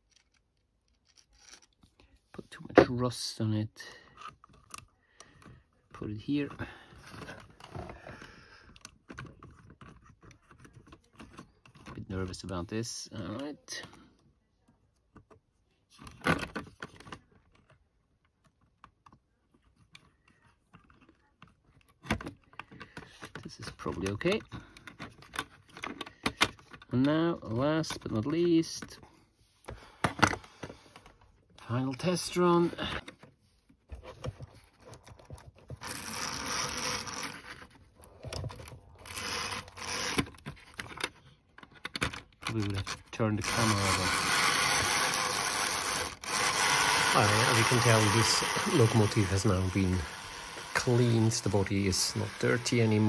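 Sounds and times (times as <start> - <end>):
fingers handling plastic model train: 0.0 - 2.2, 4.0 - 14.0, 14.7 - 53.0
model train motor running: 35.8 - 37.4, 39.1 - 40.2, 43.4 - 53.0.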